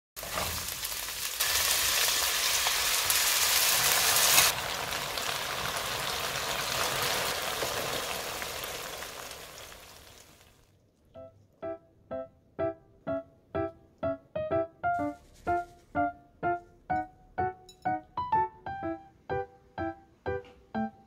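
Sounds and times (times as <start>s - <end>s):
peppers sizzling in hot oil: 0.2s - 10.7s
squid strips frying in sauce: 0.2s - 10.7s.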